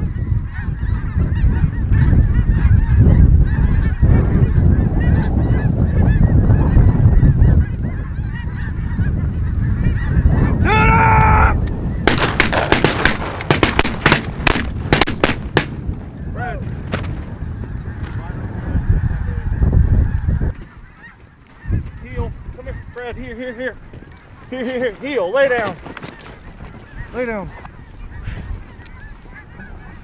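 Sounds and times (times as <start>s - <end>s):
geese honking: 0.0s - 16.6s, 17.2s - 30.0s
wind rumble on microphone: 0.0s - 30.0s
sharp cracks: 11.6s - 16.0s.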